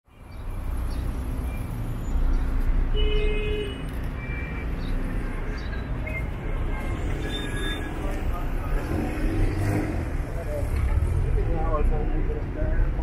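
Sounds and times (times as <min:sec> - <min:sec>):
car engines running: 0:05.2 - 0:13.0.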